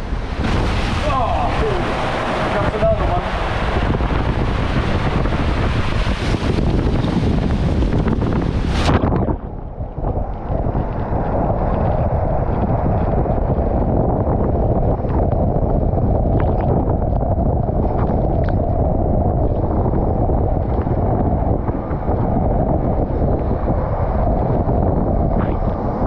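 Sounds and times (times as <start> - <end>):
water rushing through slide tube: 0.0 - 9.2.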